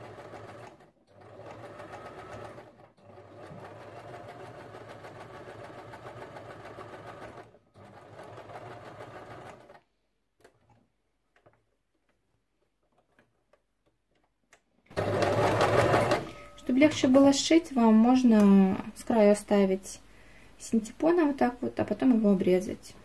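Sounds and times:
sewing machine stitching: 0.0s - 9.8s, 14.9s - 17.2s.

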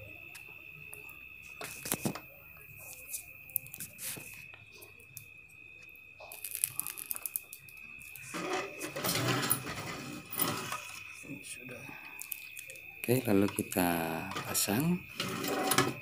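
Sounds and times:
faint high whine: 0.0s - 16.0s
rustling and scraping: 8.2s - 11.1s, 14.3s - 16.0s.

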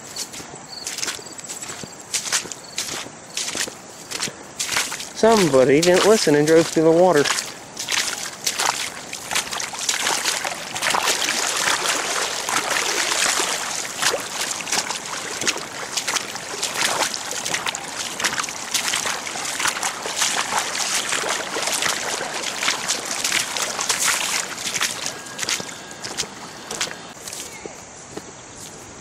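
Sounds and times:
floodwater rushing: 0.0s - 27.2s
small water splashes: 0.0s - 27.5s.

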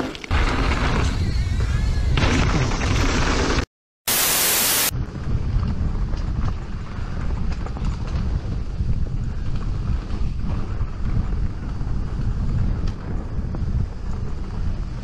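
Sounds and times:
static hiss: 4.1s - 4.9s
wind buffeting microphone: 4.9s - 15.0s
bike rattles and knocks: 5.2s - 15.0s.

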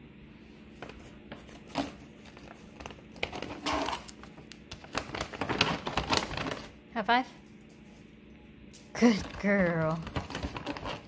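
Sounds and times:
plastic bag crinkling: 1.6s - 6.8s.

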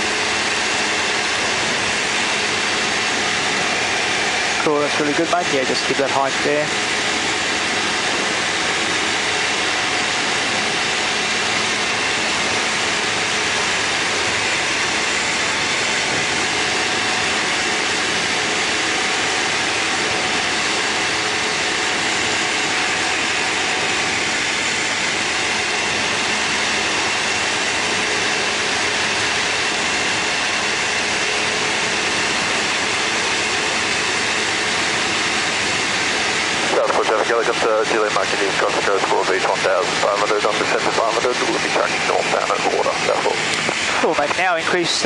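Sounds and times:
aircraft engine and propeller drone: 0.0s - 45.0s.

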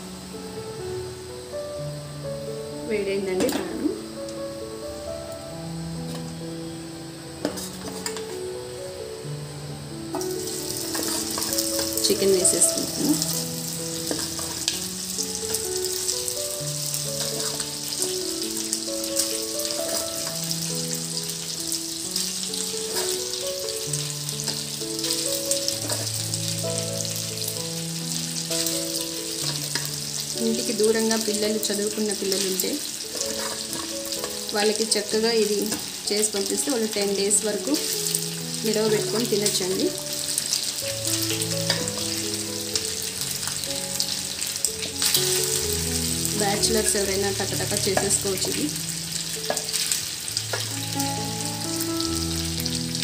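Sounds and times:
chicken sizzling in a pan: 0.0s - 53.0s
soft background melody: 0.0s - 53.0s
soft background music: 0.0s - 53.0s
spatula stirring in a pan: 7.4s - 8.2s, 10.4s - 16.1s, 16.8s - 20.6s, 21.4s - 26.6s, 28.4s - 30.4s, 33.0s - 34.7s.

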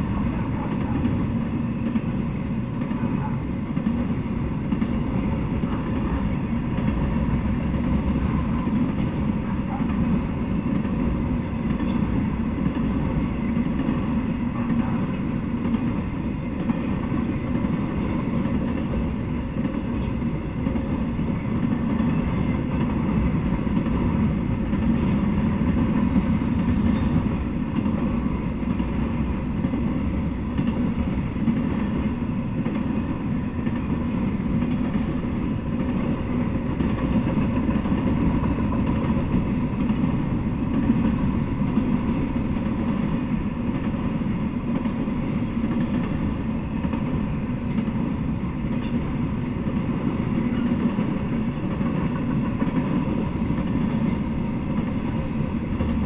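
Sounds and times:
freight train wheels rolling: 0.0s - 56.0s.

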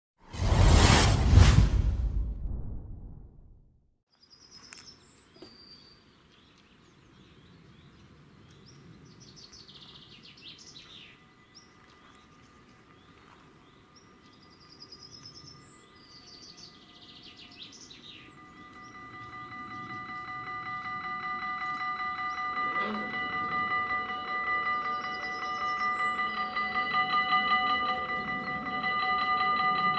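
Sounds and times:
birds singing: 4.1s - 20.3s, 24.6s - 27.1s
level crossing warning bells: 18.2s - 29.9s.

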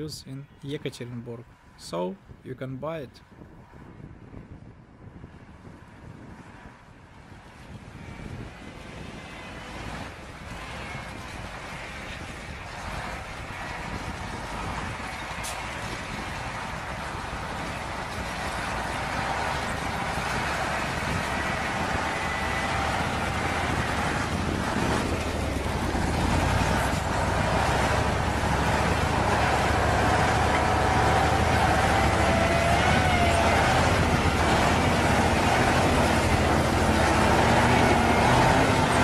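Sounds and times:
diesel engine running: 9.0s - 39.0s
vehicle tracks moving: 9.2s - 39.0s.

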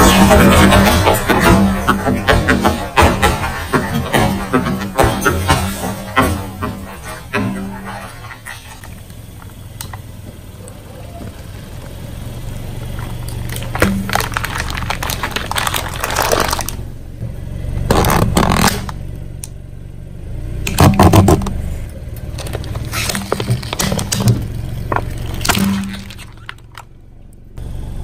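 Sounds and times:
low engine rumble: 0.0s - 28.0s
cans crushing under tyre: 12.9s - 16.9s, 22.2s - 27.0s.

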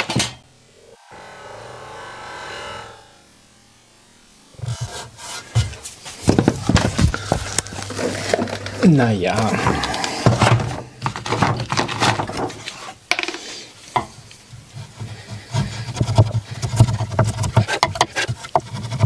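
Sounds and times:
chisel scraping on wood: 14.0s - 19.0s.

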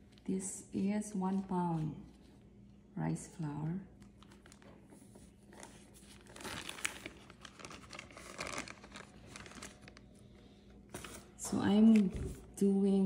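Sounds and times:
package crinkling: 4.0s - 10.2s.

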